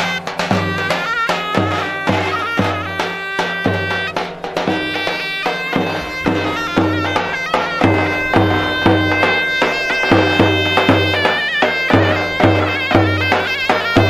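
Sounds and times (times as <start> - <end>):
deep drum beating: 0.0 - 14.0
shrill reed-pipe melody: 0.0 - 14.0.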